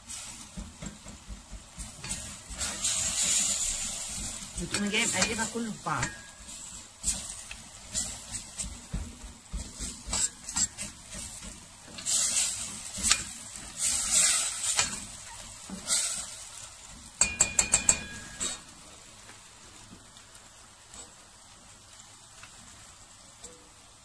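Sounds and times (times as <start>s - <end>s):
food sizzling in butter: 0.0s - 24.0s
spatula scraping metal pot: 9.5s - 16.2s.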